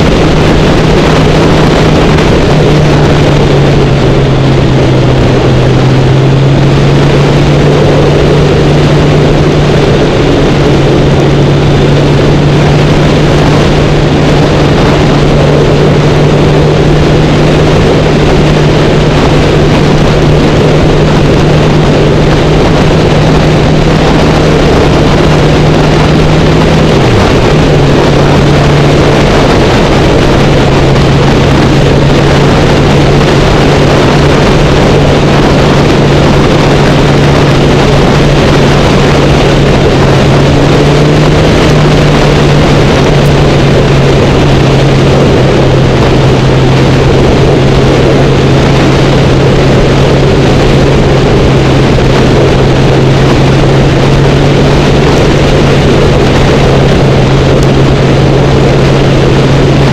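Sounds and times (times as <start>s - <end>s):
motorcycle engine cruising: 0.0s - 59.9s
wind rushing over microphone: 0.0s - 59.9s.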